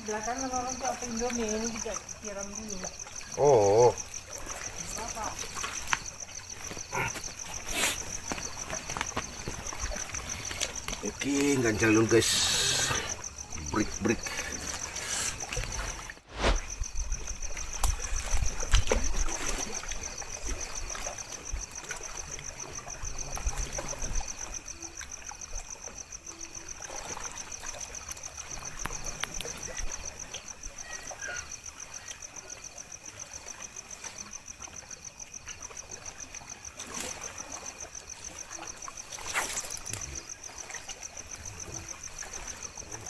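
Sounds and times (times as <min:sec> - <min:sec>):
sharp clicks: 0:28.9 - 0:29.7.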